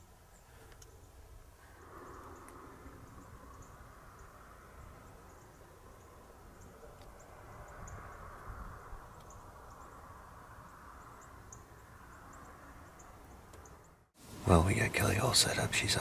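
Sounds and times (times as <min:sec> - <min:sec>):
low wind rumble: 0:00.0 - 0:16.0
small birds chirping: 0:00.0 - 0:16.0
steady hiss: 0:14.2 - 0:16.0.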